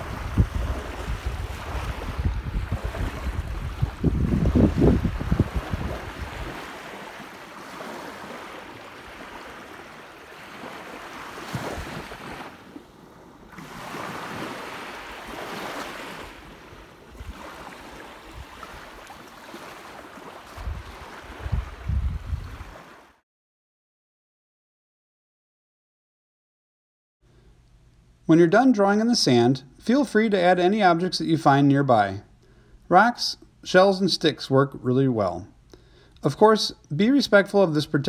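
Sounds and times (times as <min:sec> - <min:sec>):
wind buffeting microphone: 0:00.0 - 0:06.8, 0:20.5 - 0:22.8
waves washing onto shore: 0:00.0 - 0:23.2.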